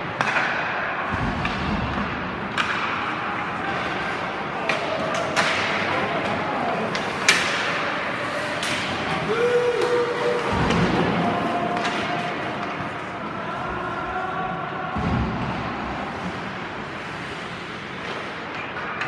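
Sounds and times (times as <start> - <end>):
hockey sticks and puck knocks: 0.0 - 13.5, 14.9 - 19.0
indistinct voices: 3.2 - 16.4.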